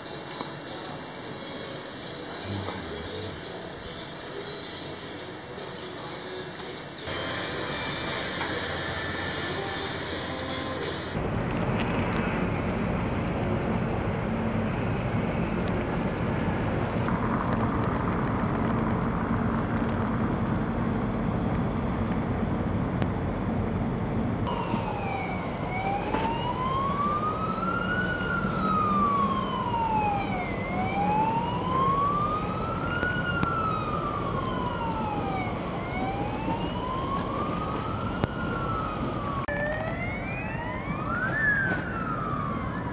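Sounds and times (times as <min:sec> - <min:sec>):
emergency siren wailing: 0:07.0 - 0:11.2, 0:24.5 - 0:42.9
steady low rumble: 0:11.1 - 0:24.5.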